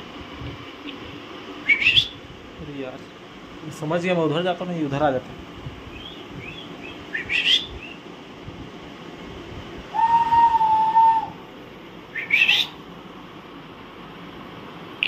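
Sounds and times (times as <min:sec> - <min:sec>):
parakeet long whistle: 0:01.6 - 0:02.2, 0:06.0 - 0:08.0, 0:09.9 - 0:11.4, 0:12.1 - 0:12.8
parakeets screeching: 0:06.5 - 0:07.9, 0:12.2 - 0:12.8.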